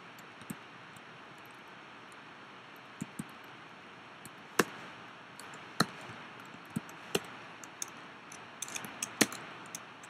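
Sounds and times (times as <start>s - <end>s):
faint steady hiss: 0.0s - 10.0s
computer keys and mouse clicking: 3.0s - 3.4s, 5.4s - 9.9s.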